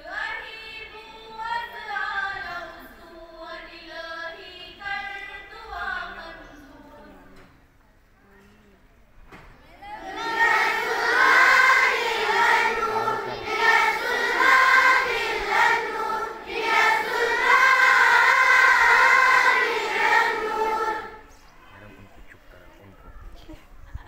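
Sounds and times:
children singing in unison: 0:09.8 - 0:21.4.

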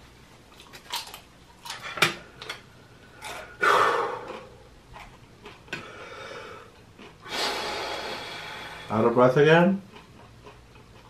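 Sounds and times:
eating and table noises: 0:00.3 - 0:11.0
heavy breath out: 0:03.4 - 0:04.5, 0:05.7 - 0:08.9.

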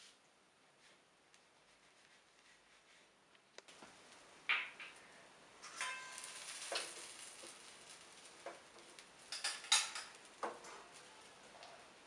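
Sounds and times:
light frying sizzle: 0:03.5 - 0:12.0.

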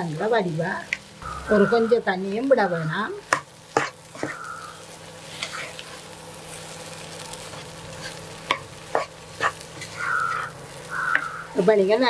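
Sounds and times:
food sizzling in a pan: 0:00.0 - 0:12.0
spatula scraping a pan: 0:03.3 - 0:04.4, 0:05.2 - 0:06.0, 0:07.5 - 0:11.4.

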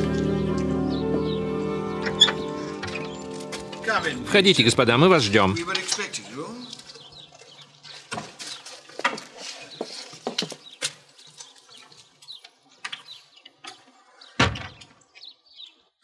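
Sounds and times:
door shutting with thud: 0:14.4 - 0:14.9.

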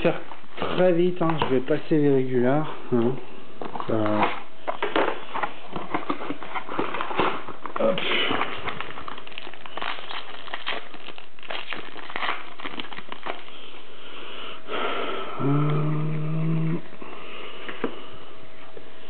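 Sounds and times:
low steady hum: 0:00.0 - 0:19.0
foil pack crinkling and tearing: 0:03.8 - 0:13.9.

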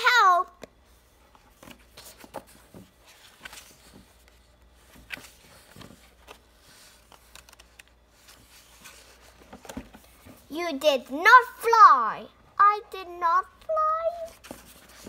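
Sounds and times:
book pages turning: 0:01.5 - 0:10.3, 0:14.1 - 0:15.0.

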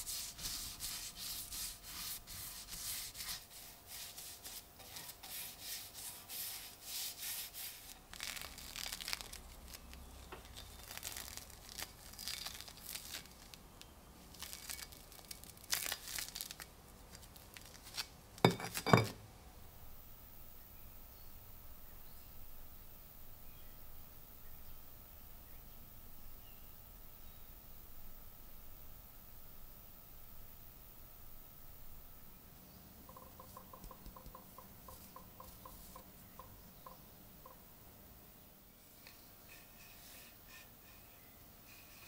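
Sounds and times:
brush scratching on wood: 0:00.0 - 0:08.0, 0:39.5 - 0:42.0
rubbing and handling sounds: 0:00.0 - 0:13.6, 0:38.8 - 0:42.0.

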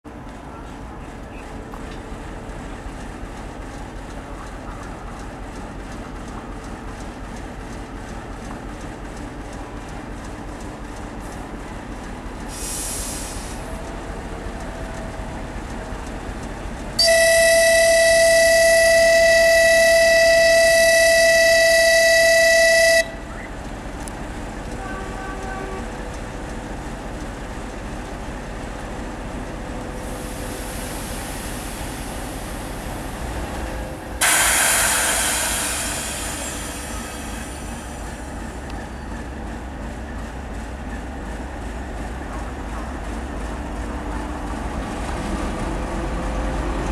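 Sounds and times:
diesel locomotive idling: 0:00.1 - 0:46.9
loud hiss: 0:12.5 - 0:13.6, 0:34.2 - 0:38.3
locomotive horn blast: 0:17.0 - 0:23.2, 0:24.7 - 0:26.0.

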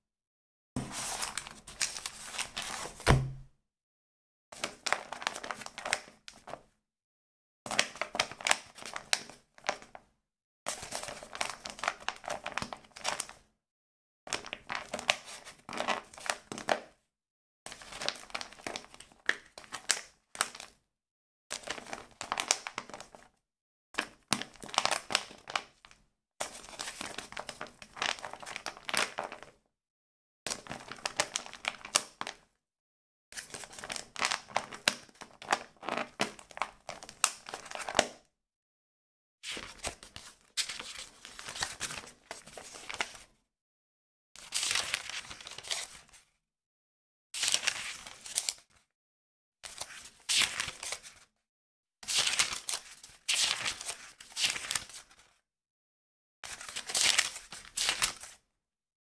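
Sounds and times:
book pages rustling: 0:00.8 - 0:03.4.

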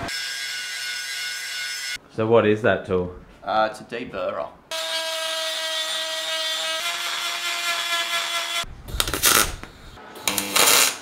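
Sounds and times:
welding crackling bursts: 0:08.9 - 0:11.0.

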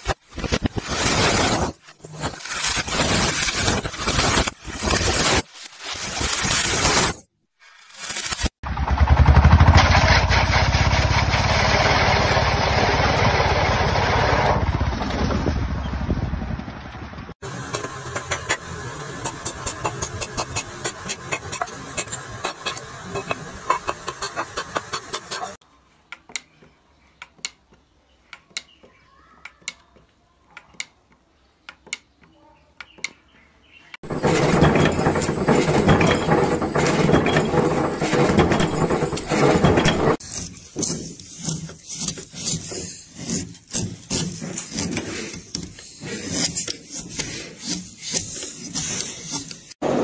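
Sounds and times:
hand tool scraping wood: 0:17.7 - 0:25.6, 0:34.0 - 0:49.8.

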